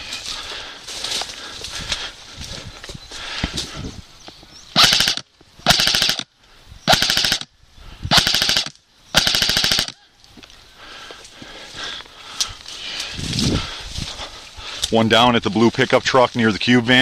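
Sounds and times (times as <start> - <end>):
airsoft rifle bursts: 4.8 - 6.3, 6.9 - 7.5, 8.1 - 10.0.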